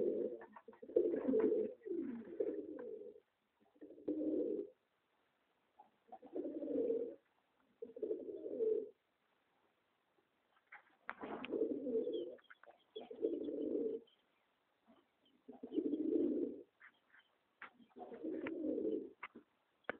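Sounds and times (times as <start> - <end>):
pigeons cooing: 0.0 - 4.8, 6.0 - 7.2, 7.8 - 9.0, 11.2 - 14.2, 14.9 - 17.0, 17.8 - 19.9.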